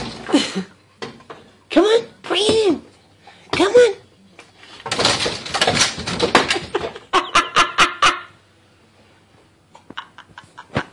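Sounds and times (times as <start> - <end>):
plastic pet door flap rattling: 4.9 - 6.8.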